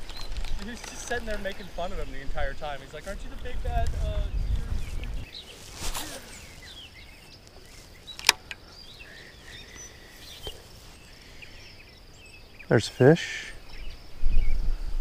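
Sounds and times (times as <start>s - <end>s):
birds chirping: 0.0s - 15.0s
sharp click: 8.1s - 8.6s.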